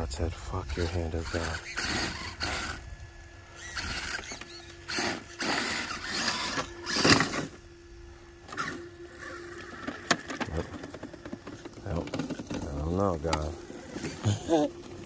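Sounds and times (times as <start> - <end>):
faint steady hum: 0.0 - 15.0
rc truck motor whirring: 0.6 - 15.0
tyres scrabbling on rock: 8.5 - 15.0.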